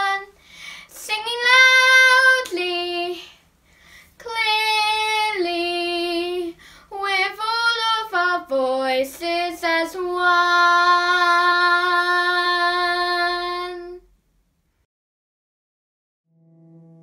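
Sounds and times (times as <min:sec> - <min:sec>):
girl singing unaccompanied: 0:00.0 - 0:03.4, 0:04.2 - 0:14.1.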